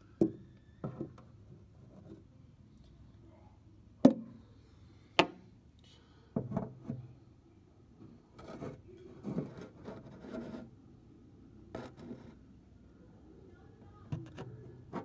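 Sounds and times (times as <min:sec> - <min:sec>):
camera rubbing: 0:08.4 - 0:10.7.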